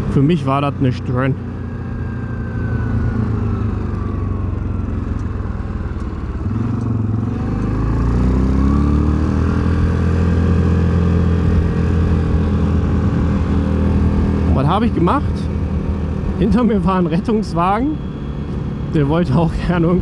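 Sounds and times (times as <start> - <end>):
quad bike engine running: 0.0 - 20.0.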